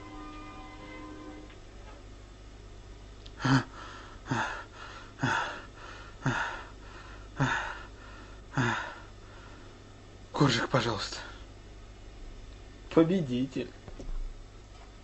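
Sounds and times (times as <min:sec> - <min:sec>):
man gasping for breath: 0:03.4 - 0:09.8.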